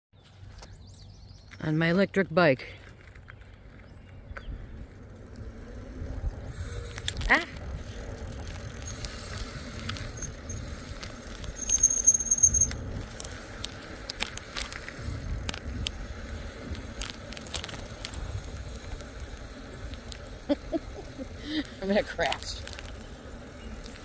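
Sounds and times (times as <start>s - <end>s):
electric bike rolling: 2.8s - 24.0s
wind rumbling on microphone: 3.4s - 24.0s
small rattles and clicks: 5.2s - 24.0s
high brake squeal: 11.6s - 12.8s.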